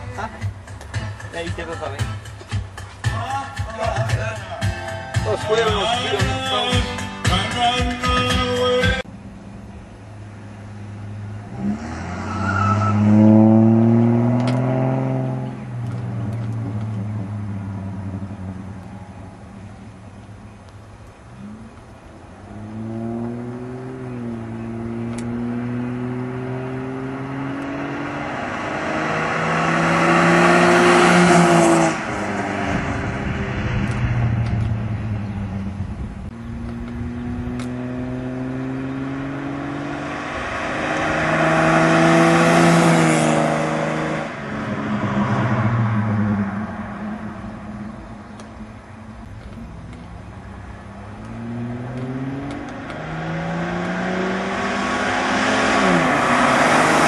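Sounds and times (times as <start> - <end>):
car engine revving hard: 11.4 - 18.3, 22.5 - 33.8, 36.6 - 47.3, 51.1 - 57.0.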